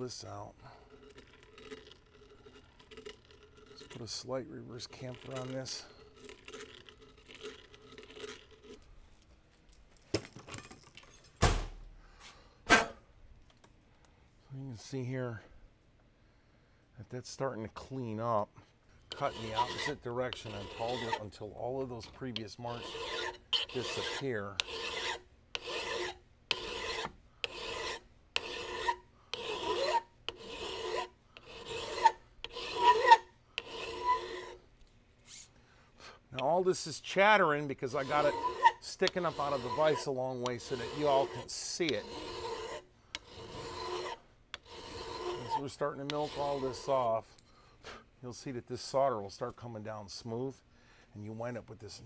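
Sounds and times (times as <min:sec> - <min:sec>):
blade scraping inside steel muzzle: 0:00.0 - 0:08.9, 0:19.1 - 0:34.6, 0:36.4 - 0:47.1
hand file chattering on metal: 0:19.1 - 0:21.2, 0:22.7 - 0:34.6, 0:37.8 - 0:47.0.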